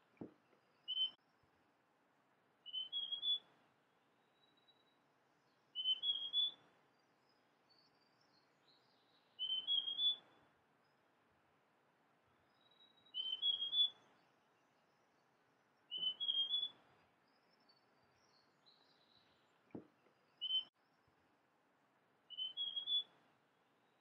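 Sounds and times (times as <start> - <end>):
bird singing whistled notes: 0.2 - 1.3, 2.6 - 3.6, 4.2 - 10.4, 12.4 - 21.0, 22.3 - 23.2.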